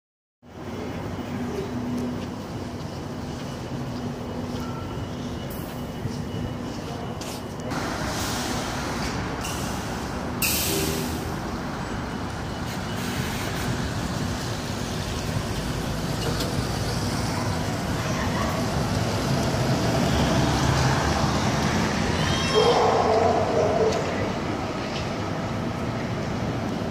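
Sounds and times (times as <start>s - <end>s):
engines and street traffic rumble: 0.4s - 26.9s
bus air-brake hiss: 8.0s - 11.3s.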